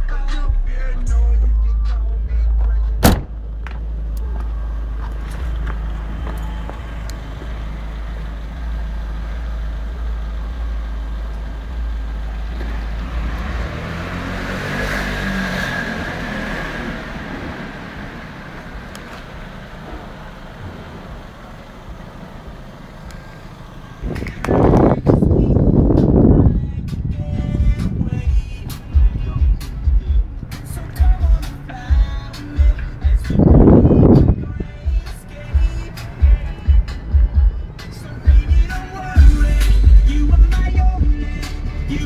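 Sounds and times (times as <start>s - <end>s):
car engine idling: 0.0s - 14.4s, 15.9s - 42.0s
sharp knock: 3.0s - 3.4s.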